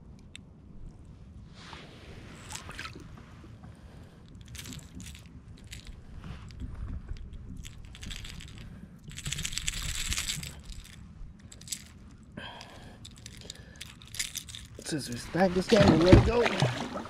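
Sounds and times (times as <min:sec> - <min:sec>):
fishing lure hooks rattling: 0:04.4 - 0:06.6, 0:07.3 - 0:15.0.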